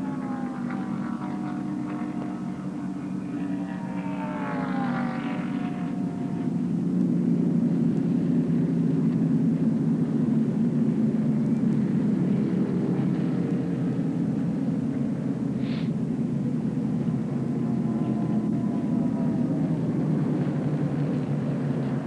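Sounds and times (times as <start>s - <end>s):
race car passing: 0.0s - 8.9s, 16.2s - 22.0s
pack of race cars rumbling: 0.0s - 22.0s.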